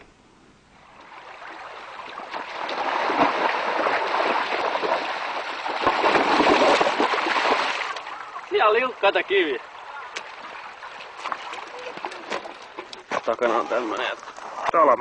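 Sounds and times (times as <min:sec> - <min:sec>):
stream water flowing: 0:00.7 - 0:14.5
bike tyres splashing through water: 0:01.0 - 0:13.8.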